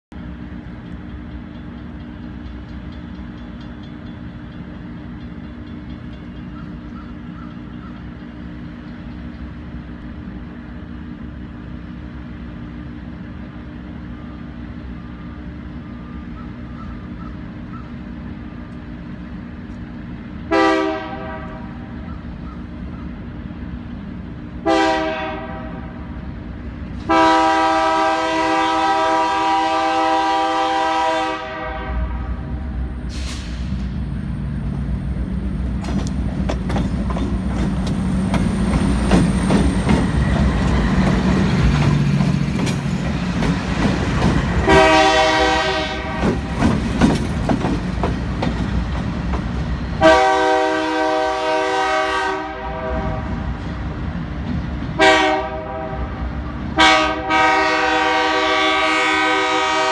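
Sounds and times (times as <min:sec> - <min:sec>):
low rumble of train: 0:00.0 - 0:59.9
locomotive air horn blasts: 0:20.5 - 0:21.9, 0:24.6 - 0:26.0, 0:27.0 - 0:32.4, 0:44.6 - 0:46.2, 0:50.0 - 0:53.4, 0:55.0 - 0:56.2, 0:56.8 - 0:59.9.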